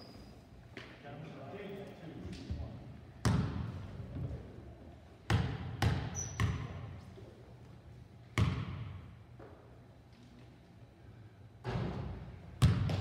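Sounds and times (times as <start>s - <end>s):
basketball bouncing on wooden floor: 12.6s - 13.0s.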